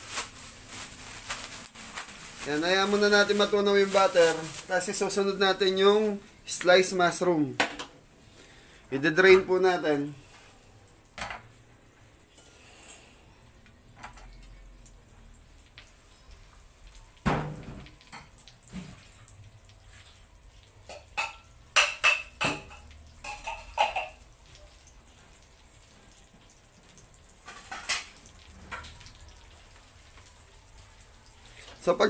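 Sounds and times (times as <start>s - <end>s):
dishes and utensils clinking: 20.8s - 24.2s.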